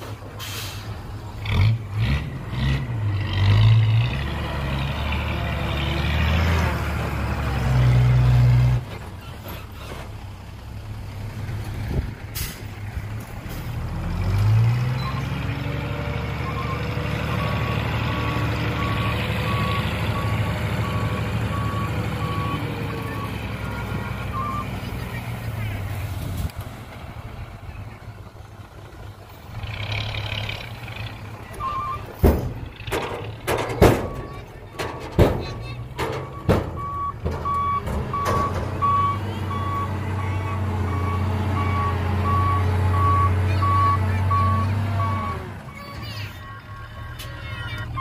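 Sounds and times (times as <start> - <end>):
diesel truck engine revving: 0.0 - 48.0
reversing alarm beeping: 16.4 - 23.4, 24.3 - 24.8, 31.6 - 32.1, 36.2 - 48.0.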